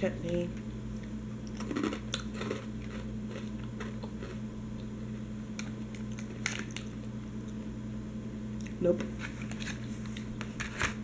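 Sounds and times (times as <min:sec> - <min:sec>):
steady low hum: 0:00.0 - 0:11.0
person chewing crunchy snack: 0:01.0 - 0:04.4.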